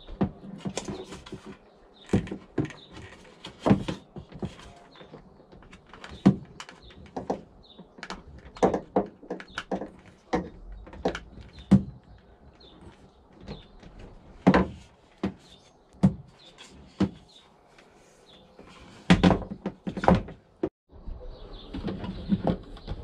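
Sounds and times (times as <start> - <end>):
hard plastic parts knocking: 0.1 - 17.3, 18.9 - 20.7.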